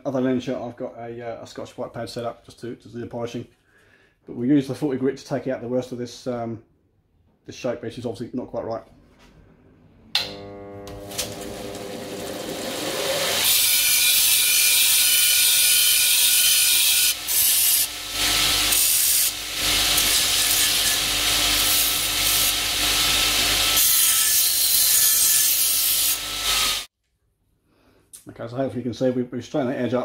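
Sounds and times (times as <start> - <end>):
belt sander grinding metal: 10.4 - 26.9.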